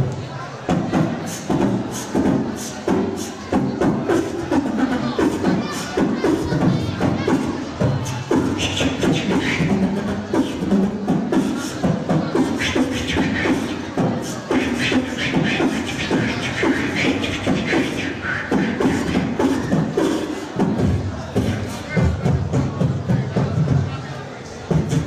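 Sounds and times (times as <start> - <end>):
beatboxing vocal kick drums: 0.0 - 23.9, 24.6 - 25.0
beatboxing clicks: 0.1 - 21.8
hissed vocal hi-hats: 7.9 - 20.8.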